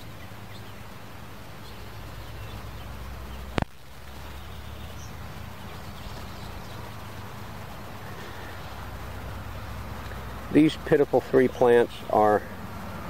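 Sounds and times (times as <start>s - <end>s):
faint bird chirps: 0.0s - 3.6s, 4.2s - 7.4s
steady low rumble: 0.0s - 13.0s.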